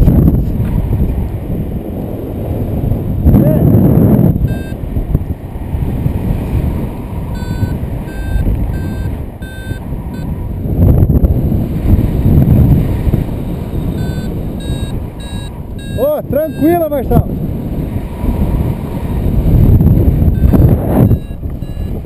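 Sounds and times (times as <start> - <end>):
wind buffeting microphone: 0.0 - 22.0
variometer beeps: 4.4 - 4.8, 7.3 - 10.4, 13.7 - 17.2, 20.2 - 22.0.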